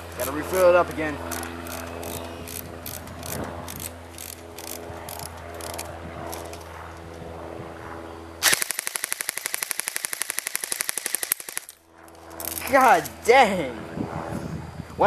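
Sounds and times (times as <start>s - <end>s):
airsoft rifle handling clicks: 1.3s - 6.7s
airsoft rifle full-auto burst: 8.4s - 11.8s.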